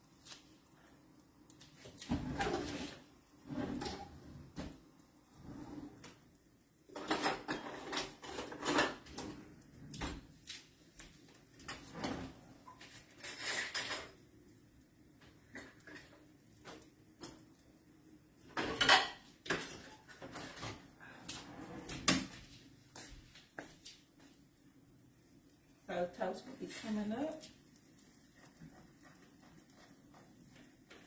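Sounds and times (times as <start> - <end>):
kitchen things clattering: 6.8 - 10.7, 11.6 - 14.3, 18.4 - 22.6.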